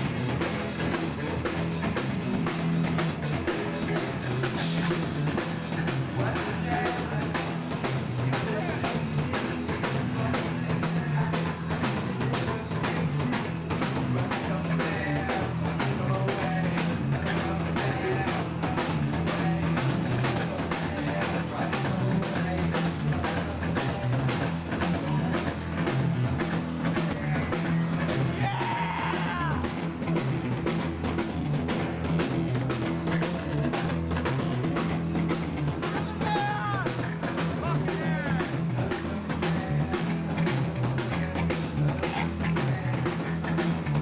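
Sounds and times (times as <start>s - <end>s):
bass guitar: 0.0s - 44.0s
drum kit pounding: 0.0s - 44.0s
electric guitars: 0.0s - 44.0s
person singing: 3.4s - 29.8s, 35.8s - 44.0s.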